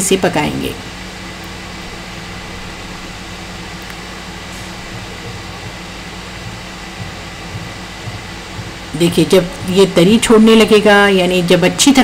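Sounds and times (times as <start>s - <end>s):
fan humming: 0.0s - 12.0s.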